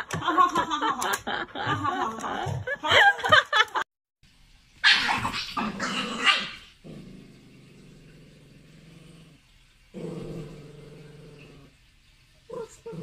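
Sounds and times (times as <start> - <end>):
dog growling low: 5.6 - 11.8.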